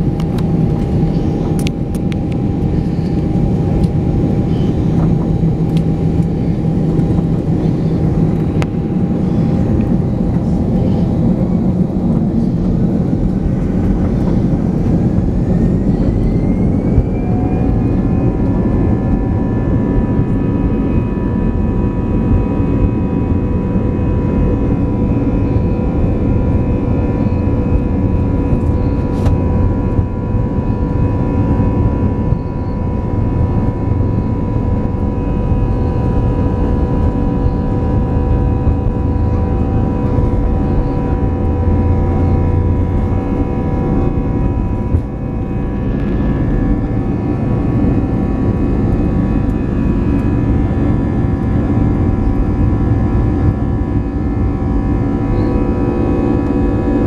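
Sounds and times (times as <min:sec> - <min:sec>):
jet engines whining: 0:00.0 - 0:57.0
steady low rumble: 0:00.0 - 0:57.0.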